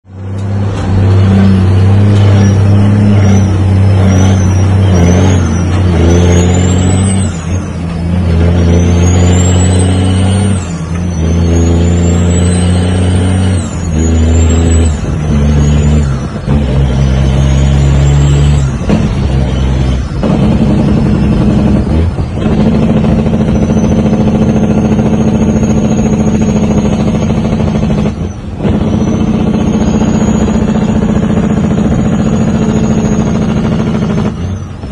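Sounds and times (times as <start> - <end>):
diesel truck engine shifting gears: 0.0 - 34.9
turbo whistle: 8.3 - 34.9.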